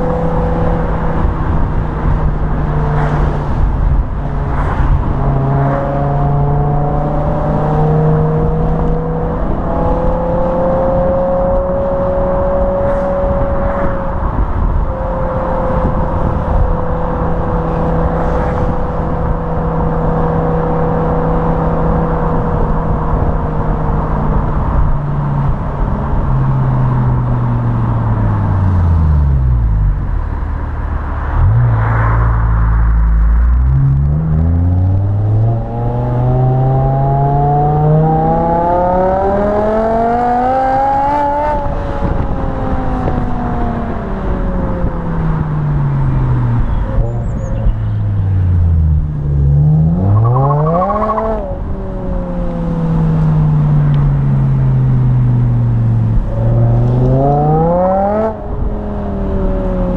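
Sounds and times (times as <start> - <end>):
car engine revving: 0.0 - 59.9.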